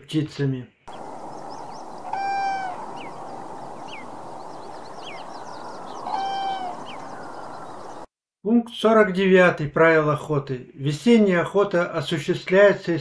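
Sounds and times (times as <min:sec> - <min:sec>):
small birds chirping: 0:00.1 - 0:08.1
outdoor hiss: 0:00.9 - 0:08.0
large bird drawn-out calls: 0:00.9 - 0:08.1.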